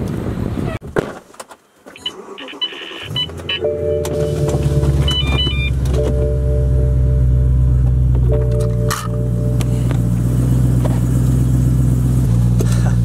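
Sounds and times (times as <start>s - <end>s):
short high electronic beeps: 2.0s - 7.3s
car engine starting and idling: 2.0s - 13.0s.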